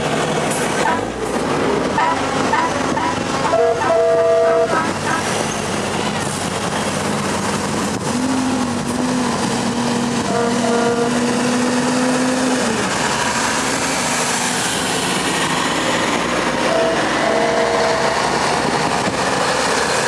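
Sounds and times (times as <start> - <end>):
heavy trucks driving past: 0.0 - 20.0
truck air horn: 2.0 - 5.0, 10.3 - 11.3, 16.6 - 18.2.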